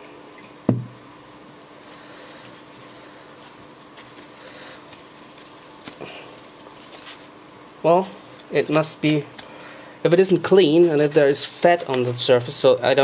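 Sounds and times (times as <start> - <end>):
glass bottle knocking on workbench: 0.7 - 1.0.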